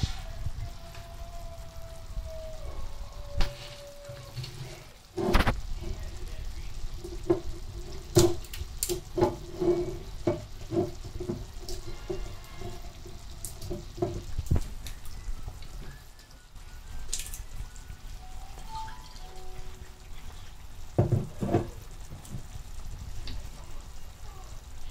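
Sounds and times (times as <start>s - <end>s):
utensil knocking frying pan: 6.9s - 14.7s, 20.9s - 22.6s.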